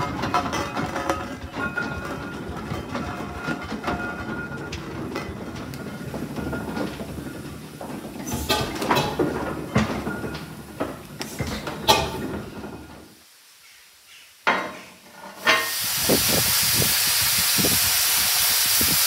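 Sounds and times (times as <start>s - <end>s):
steam engine running: 15.7s - 19.0s.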